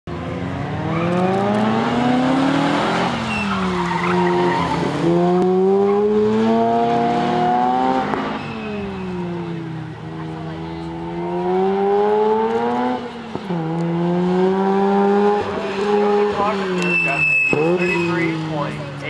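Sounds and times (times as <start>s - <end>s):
rotary engine revving hard: 0.3s - 19.0s
tire squeal: 0.8s - 1.6s, 2.6s - 5.0s, 7.7s - 9.5s, 15.5s - 18.8s.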